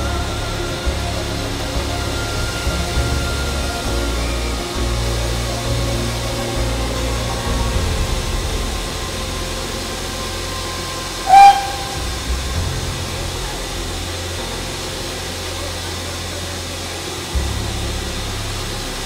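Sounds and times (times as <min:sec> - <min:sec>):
low rumble and hiss: 0:00.0 - 0:19.0
steam locomotive whistle toot: 0:10.7 - 0:12.5.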